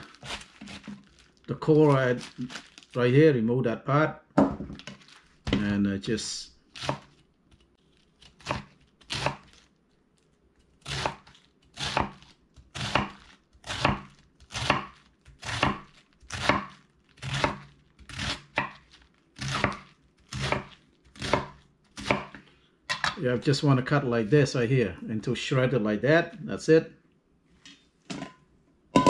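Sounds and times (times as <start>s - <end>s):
knife slicing cabbage on wooden board: 0.0s - 1.1s, 6.8s - 7.2s, 8.2s - 9.6s, 10.8s - 22.4s.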